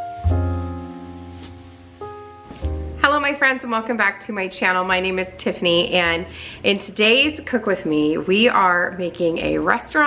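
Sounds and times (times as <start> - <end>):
instrumental music chords: 0.0 - 3.4
deep bass note: 0.2 - 3.2.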